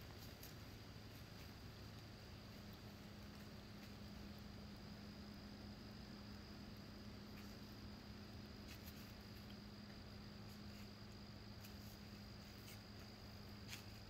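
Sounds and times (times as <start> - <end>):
cricket trill: 0.0 - 14.0.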